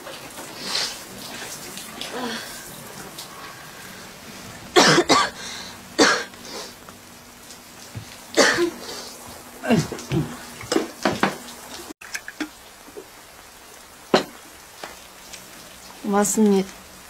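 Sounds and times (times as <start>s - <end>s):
woman coughing: 4.8s - 6.3s, 8.4s - 8.8s.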